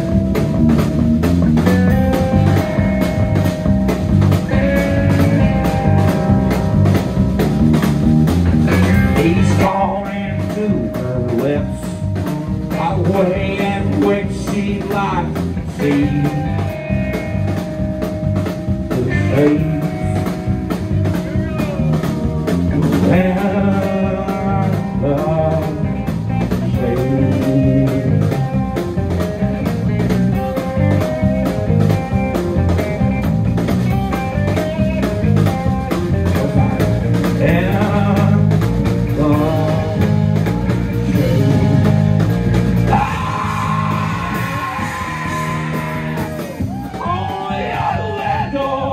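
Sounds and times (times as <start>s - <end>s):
drum kit: 0.0s - 48.9s
electric bass: 0.0s - 48.9s
electric guitar: 0.0s - 48.9s
person singing: 8.9s - 17.0s, 18.9s - 21.8s, 22.8s - 28.6s, 36.3s - 40.3s, 40.9s - 42.0s, 42.8s - 48.9s.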